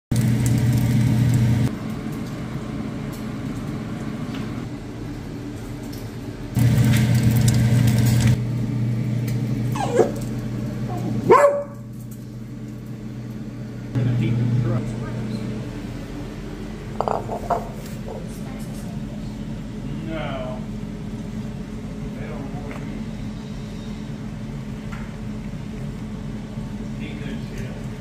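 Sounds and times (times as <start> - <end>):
steady low hum: 0.1 - 28.0
dog yelping barks: 9.7 - 10.2, 11.2 - 11.8.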